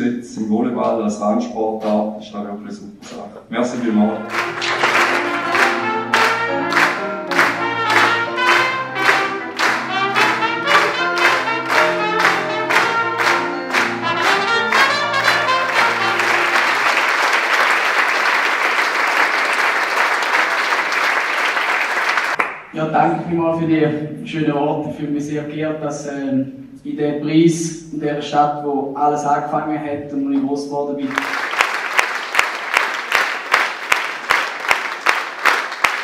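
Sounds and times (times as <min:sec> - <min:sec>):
applause: 0:03.7 - 0:22.7, 0:31.0 - 0:36.0
live band playing lively tune: 0:03.8 - 0:17.0.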